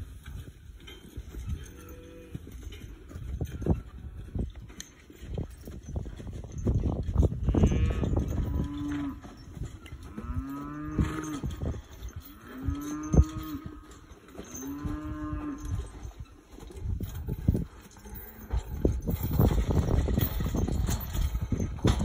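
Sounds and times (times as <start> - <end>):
cattle mooing: 7.5 - 9.2, 10.1 - 11.4, 14.6 - 15.7
knocking and clatter: 18.5 - 22.0.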